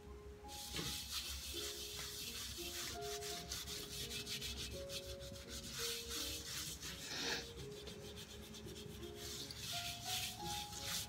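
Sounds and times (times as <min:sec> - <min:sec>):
faint background music: 0:00.0 - 0:11.0
cloth scrubbing brass dish: 0:00.6 - 0:11.0.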